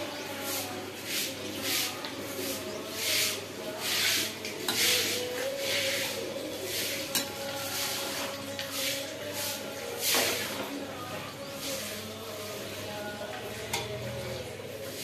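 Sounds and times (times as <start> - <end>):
spoon swishing in boiling water: 0.2 - 13.6
spoon clinking against pot: 7.1 - 7.6.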